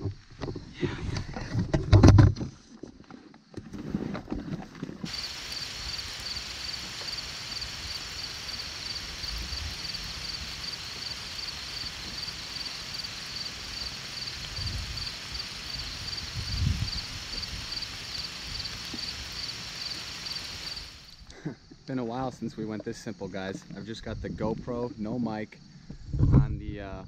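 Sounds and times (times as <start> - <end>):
insects chirping in chorus: 5.1 - 26.2.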